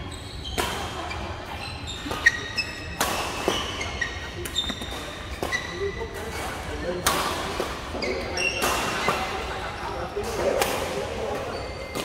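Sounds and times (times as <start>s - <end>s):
shoes squeaking on court: 0.0s - 6.8s, 7.8s - 9.9s, 11.3s - 12.0s
hum of play in hall: 0.0s - 12.0s.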